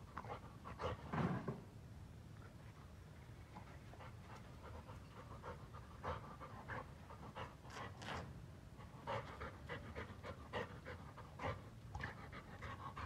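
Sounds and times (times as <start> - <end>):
dog panting: 3.7 - 8.2, 8.8 - 13.0.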